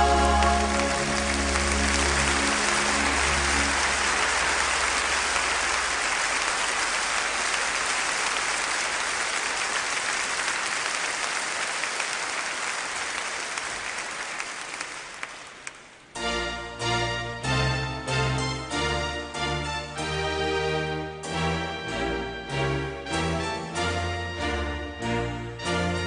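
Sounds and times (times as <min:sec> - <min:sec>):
music: 0:00.0 - 0:05.5, 0:16.2 - 0:26.0
congregation applauding: 0:00.0 - 0:16.1.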